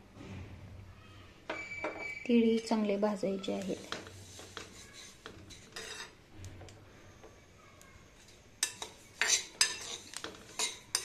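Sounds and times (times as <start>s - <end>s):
metal spoon scraping a pan: 3.4s - 6.2s, 8.2s - 11.0s.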